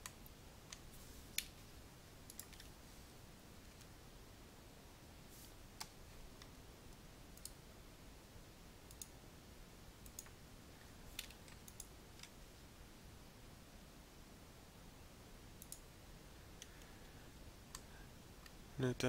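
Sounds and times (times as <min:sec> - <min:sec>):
low room hiss: 0:00.0 - 0:19.0
faint computer mouse clicks: 0:11.2 - 0:12.3, 0:15.6 - 0:15.8.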